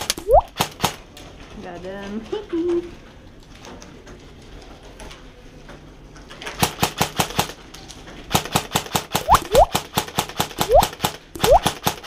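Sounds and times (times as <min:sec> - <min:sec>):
airsoft gun firing rapid shots: 0:00.5 - 0:01.0, 0:06.6 - 0:07.6, 0:08.3 - 0:12.0.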